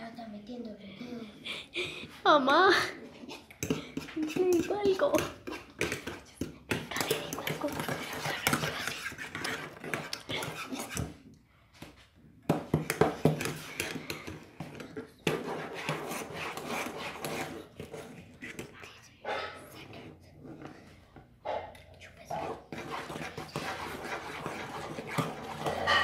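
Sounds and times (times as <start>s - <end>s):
spoon scraping against a pot: 3.4s - 11.2s, 12.8s - 18.7s, 21.5s - 26.0s.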